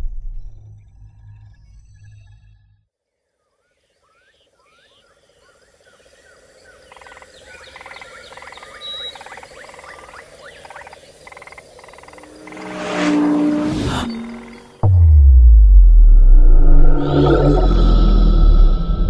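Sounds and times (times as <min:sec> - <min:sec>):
frogs chirping and croaking: 0:03.6 - 0:12.7
steady pulsing drone: 0:12.1 - 0:19.0
whoosh: 0:12.2 - 0:19.0.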